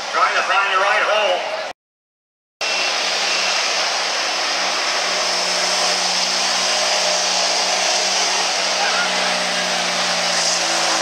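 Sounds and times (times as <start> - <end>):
diesel engine at full throttle: 2.6 - 11.0.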